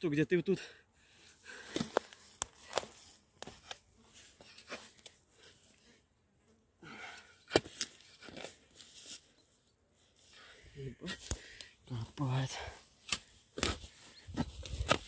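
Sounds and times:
shovel digging soil: 1.6 - 5.2, 7.2 - 9.2, 12.3 - 15.0.

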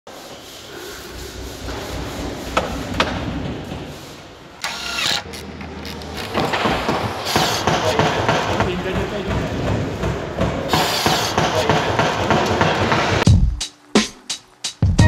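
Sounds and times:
machine-like ratcheting: 4.6 - 6.4.

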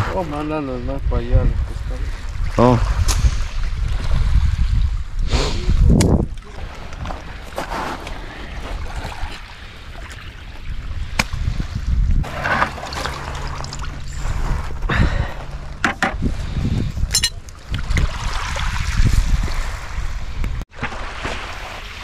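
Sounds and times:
rumbling wind: 0.0 - 22.0
small waves on pebble shore: 17.8 - 22.0.

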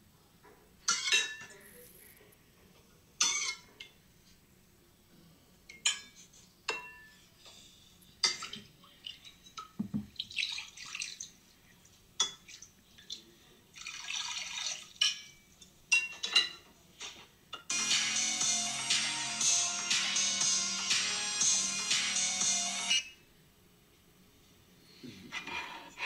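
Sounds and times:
liquid splashing: 8.2 - 11.4, 13.8 - 15.0.

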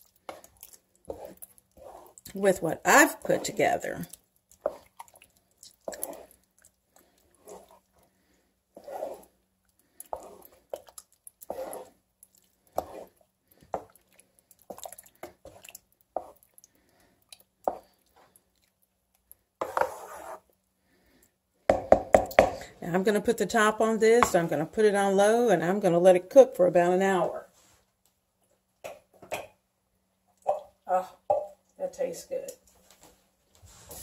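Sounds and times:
spatula stirring thick sauce: 0.0 - 25.6
spatula tapping pan: 21.7 - 22.6.

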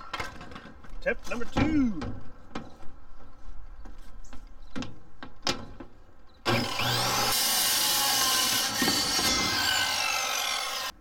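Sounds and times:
circular saw cutting plywood: 6.5 - 11.0.

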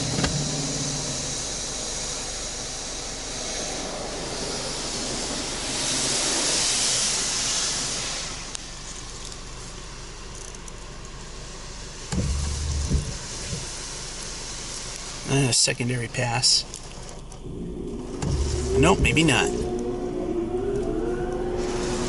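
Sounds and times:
water spray hissing on car: 0.0 - 17.3, 20.3 - 22.0
low thumps: 12.1 - 13.7, 17.4 - 21.0.

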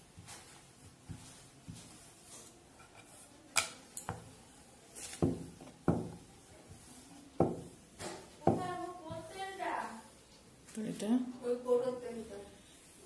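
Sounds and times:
rolling pin rolling dough: 0.0 - 9.3
rolling pin knocking on board: 5.2 - 6.2, 7.4 - 7.8, 8.4 - 8.7.

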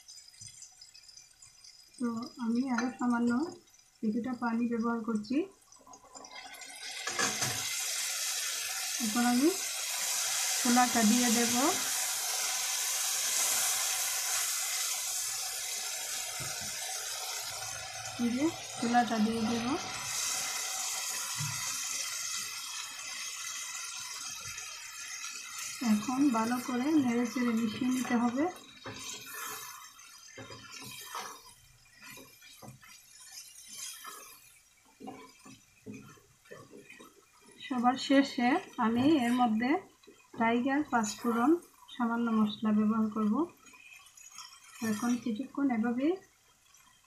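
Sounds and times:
masala sizzling and bubbling: 0.0 - 47.0
spatula stirring pot: 4.8 - 47.0
spatula scraping wet curry: 25.5 - 37.6.

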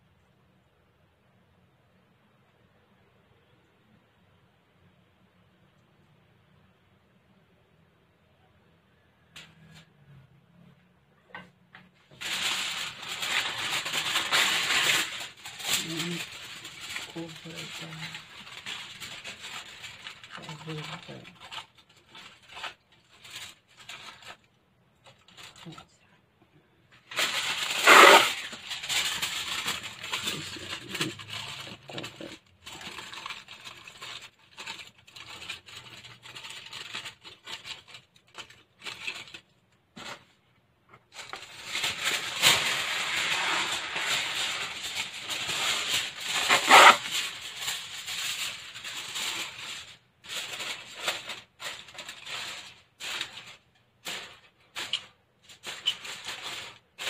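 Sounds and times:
aluminium foil crinkling: 12.0 - 26.1, 26.9 - 57.0.

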